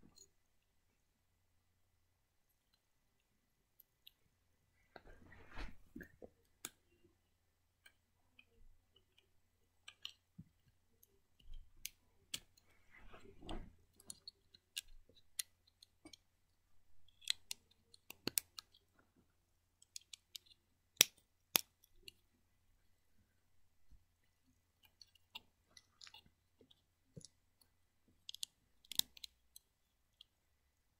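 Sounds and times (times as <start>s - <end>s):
plastic bricks clicking: 28.2s - 29.7s.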